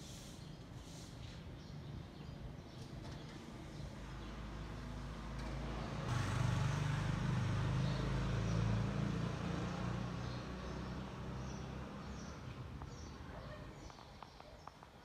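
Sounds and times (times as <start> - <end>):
vehicle engine hum passing: 4.1 - 13.5.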